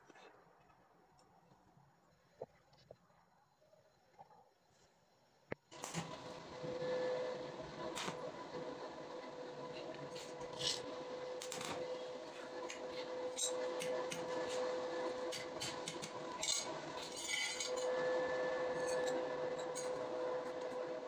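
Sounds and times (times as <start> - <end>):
steady background hum: 0.0 - 21.0
metal scraping on concrete: 9.8 - 20.8.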